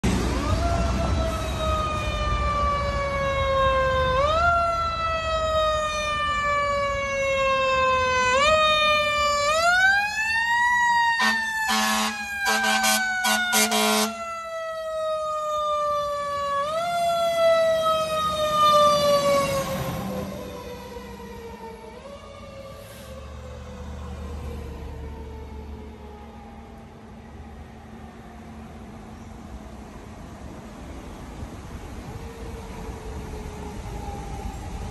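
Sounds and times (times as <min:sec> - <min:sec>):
fire engine siren wailing: 0:00.0 - 0:28.8, 0:31.7 - 0:34.9
short air horn blasts: 0:11.2 - 0:14.2.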